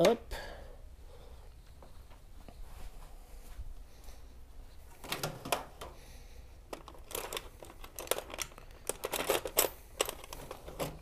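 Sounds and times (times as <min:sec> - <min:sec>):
metal tools clicking and clinking: 0:06.7 - 0:11.0.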